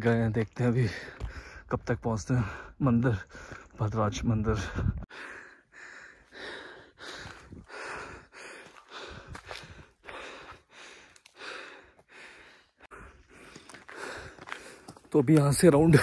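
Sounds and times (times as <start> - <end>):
person breathing hard: 0.9 - 1.7, 4.8 - 15.0.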